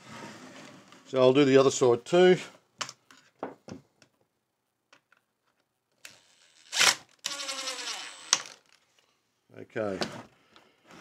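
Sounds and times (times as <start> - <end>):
cordless drill driving screw: 6.0 - 8.8.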